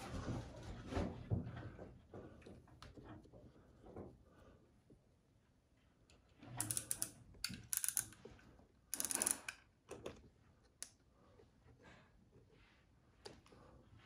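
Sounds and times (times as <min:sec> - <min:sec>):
wallpaper crackling and rustling: 0:00.0 - 0:06.6.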